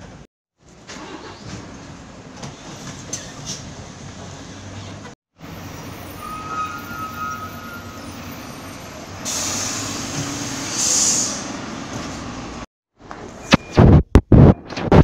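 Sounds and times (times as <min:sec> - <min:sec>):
air hiss of bus door opening: 0:09.2 - 0:11.5.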